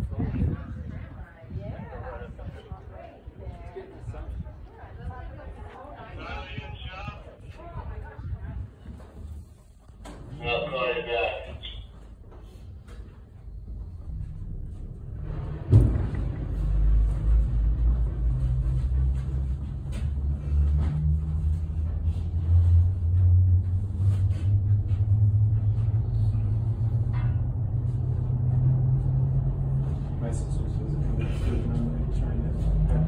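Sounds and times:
cable car rumble and hum: 0.0 - 33.0
cable car clunk: 26.4 - 28.1.

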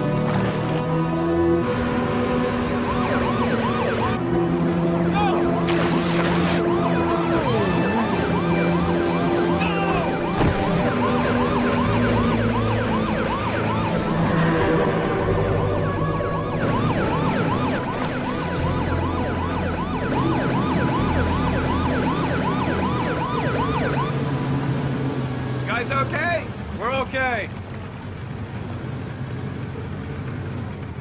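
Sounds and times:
low steady drone: 0.0 - 25.6
electronic siren yelping: 1.8 - 4.3, 6.5 - 24.3.

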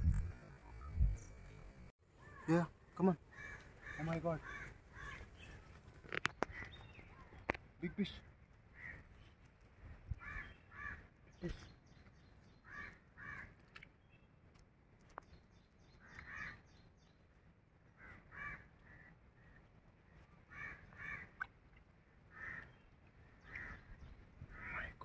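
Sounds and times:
faint bird calls: 2.2 - 7.6.

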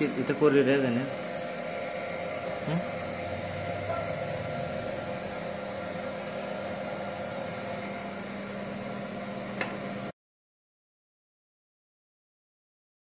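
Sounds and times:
machine fan and electrical hum: 0.0 - 10.1.

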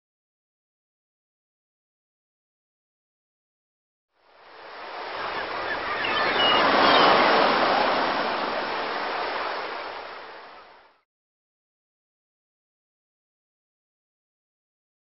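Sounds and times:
surf-like water rush: 4.2 - 11.0
faint high chirps: 5.2 - 7.3.

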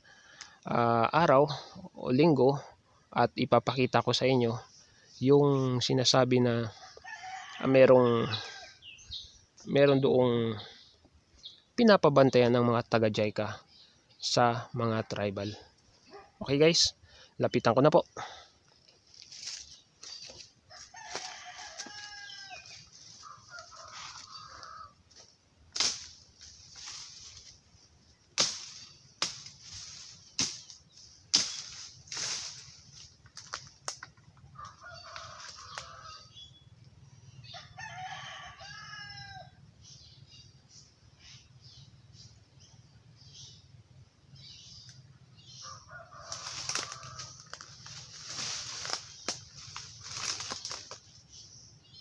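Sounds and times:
roosters crowing: 6.4 - 9.2, 20.1 - 27.4, 34.4 - 36.8, 37.4 - 40.0, 45.4 - 51.4
twigs cracking underfoot: 18.7 - 27.6, 28.3 - 36.0, 46.0 - 51.2.

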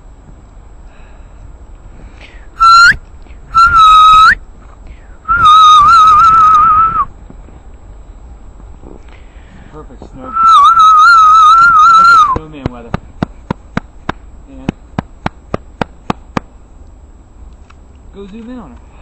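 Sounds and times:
person whistling: 2.6 - 3.0, 3.6 - 4.4, 5.3 - 7.1, 10.3 - 12.4.

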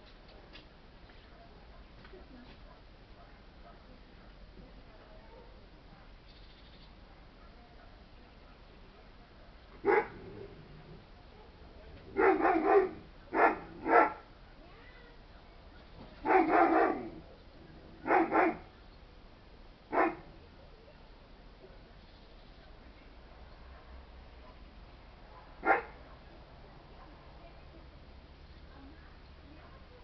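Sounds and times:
dog barking: 9.8 - 10.3, 12.1 - 14.2, 16.2 - 17.2, 18.0 - 18.7, 19.9 - 20.3, 25.3 - 26.2.

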